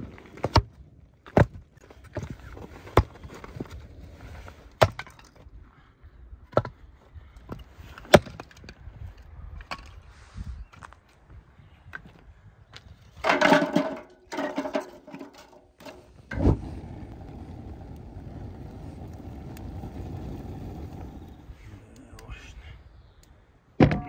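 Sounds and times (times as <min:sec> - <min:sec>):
logs clattering into steel stove: 0:13.2 - 0:17.1
wood fire burning: 0:13.2 - 0:23.4.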